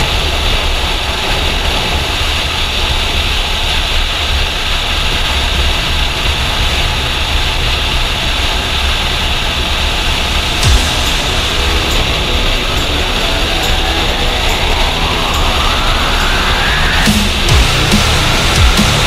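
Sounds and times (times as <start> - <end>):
wind rushing over microphone: 0.0 - 19.0
low motorcycle engine drone: 5.1 - 19.0.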